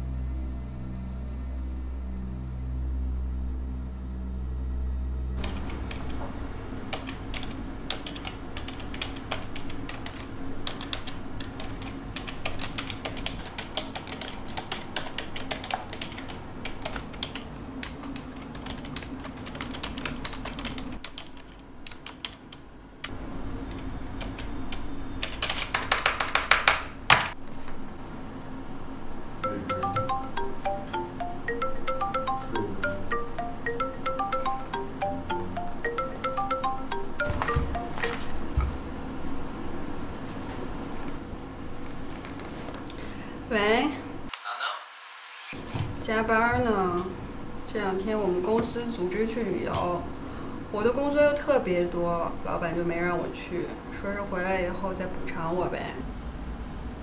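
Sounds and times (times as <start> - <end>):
low drone: 0.0 - 6.9
computer keyboard typing: 6.9 - 27.3.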